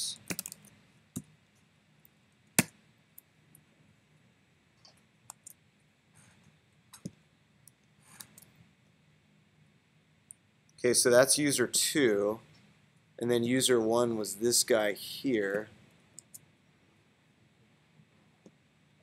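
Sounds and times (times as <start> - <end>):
keyboard and mouse clicks: 0.2 - 1.3, 8.2 - 8.5.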